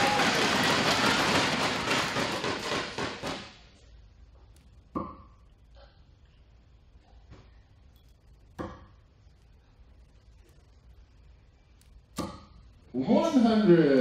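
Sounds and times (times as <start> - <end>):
audience applauding: 0.0 - 3.4
dart striking dartboard: 12.2 - 12.6.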